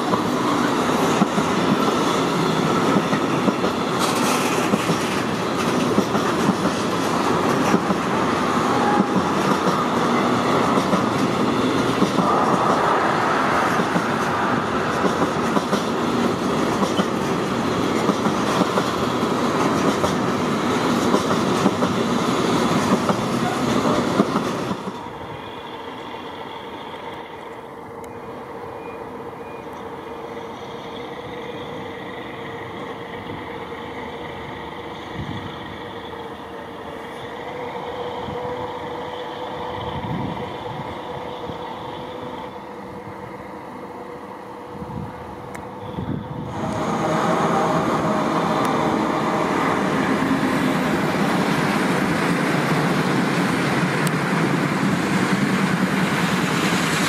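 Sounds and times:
freight train wheels clattering: 0.0 - 12.9, 13.7 - 25.1
diesel locomotive humming: 0.0 - 57.0.

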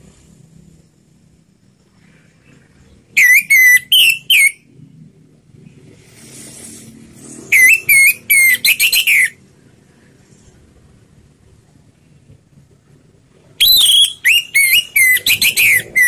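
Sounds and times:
thrush singing whistled notes: 2.9 - 4.7, 7.4 - 9.4, 13.6 - 16.0.

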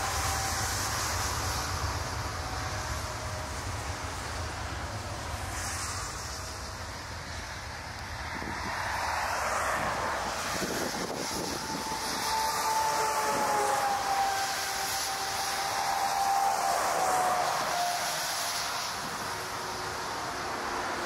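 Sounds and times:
jet engines rushing: 0.0 - 21.0
steady whine: 0.0 - 21.0
wind buffeting microphone: 6.3 - 15.5.

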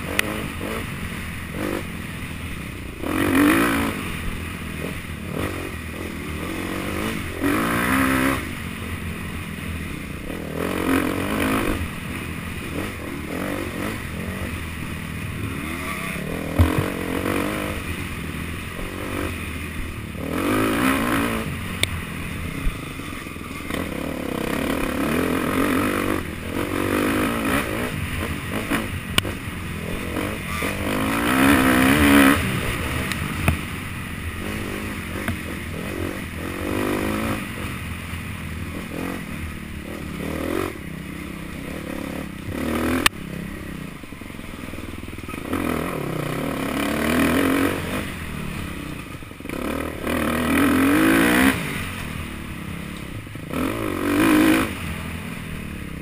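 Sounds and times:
dirt bike engine revving: 0.0 - 56.0
bike knocking on rough ground: 16.5 - 17.0.

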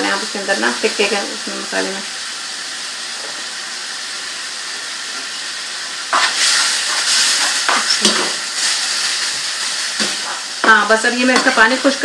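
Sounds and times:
meat sizzling in a frying pan: 0.0 - 12.0
wooden spoon knocking on pan: 10.0 - 11.6.

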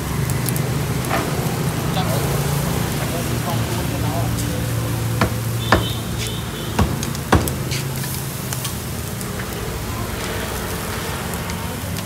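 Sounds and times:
meat sizzling on a grill: 0.0 - 12.0.

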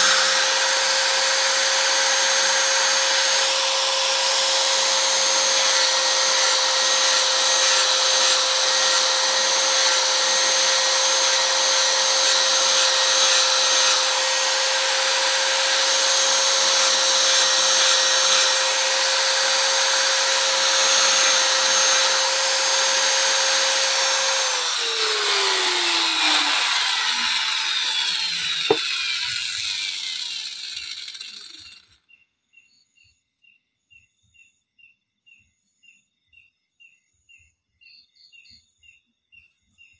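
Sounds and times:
angle grinder sanding wood: 0.0 - 31.9.

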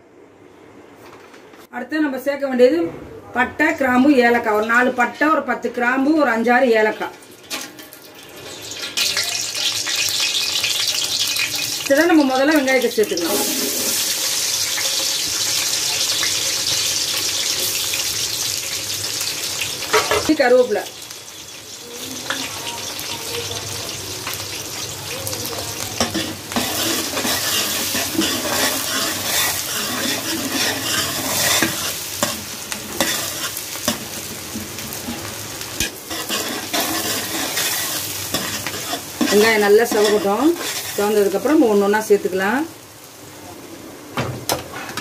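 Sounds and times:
onions sizzling in hot oil: 4.2 - 43.8
metal ladle scraping a pot: 26.0 - 32.4, 35.8 - 41.0.

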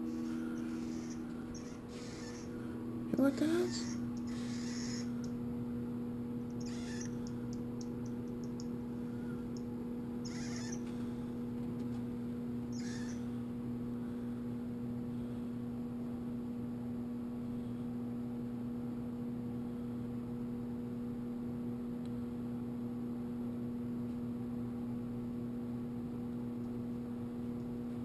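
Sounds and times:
electrical hum: 0.0 - 28.0
monkey chirping and squeaking: 0.6 - 2.6, 3.5 - 5.3, 6.6 - 7.3, 10.2 - 10.8, 12.7 - 13.2
tiny ticks: 6.4 - 8.8, 9.5 - 9.7.

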